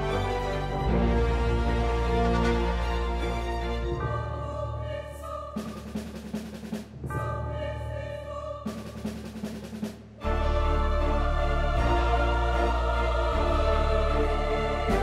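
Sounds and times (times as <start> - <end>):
music with sustained chords: 0.0 - 4.7, 10.2 - 15.0.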